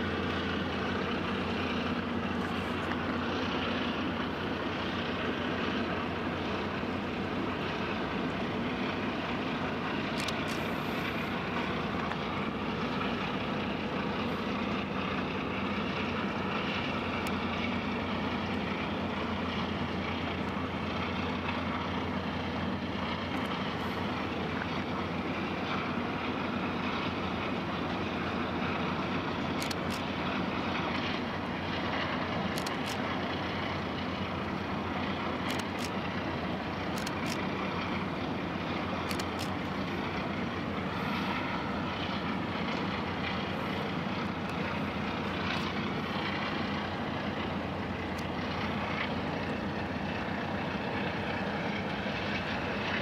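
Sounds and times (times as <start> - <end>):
ship engines droning: 0.0 - 53.0.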